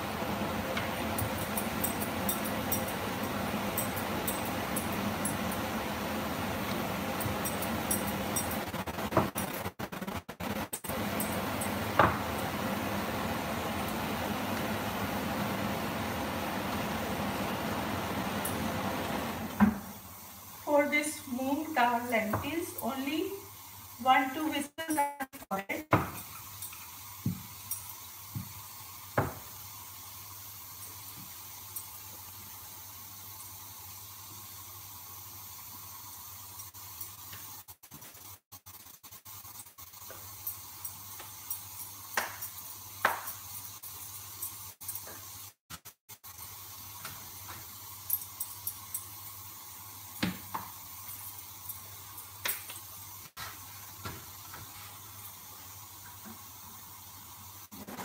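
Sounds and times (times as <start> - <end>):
steady hiss: 19.7 - 25.2, 26.1 - 57.9.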